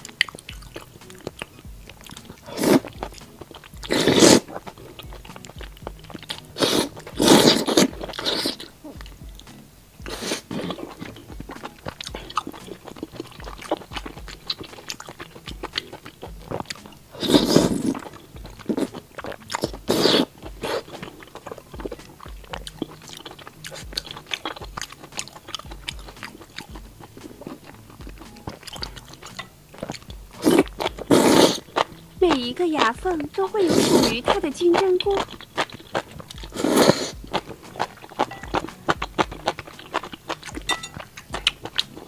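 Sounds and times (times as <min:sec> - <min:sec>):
wet chewing clicks: 0:00.0 - 0:42.0
loud slurps: 0:02.1 - 0:08.7, 0:10.1 - 0:21.6, 0:28.5 - 0:32.0, 0:33.6 - 0:34.2, 0:35.6 - 0:38.7.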